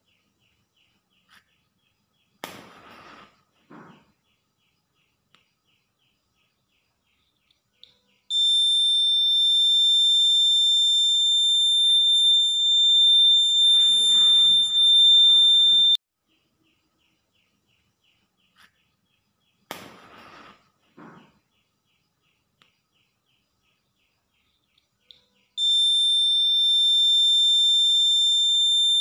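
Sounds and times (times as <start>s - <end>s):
high-pitched buzzer alarm tone: 8.3s - 16.0s, 25.6s - 29.0s.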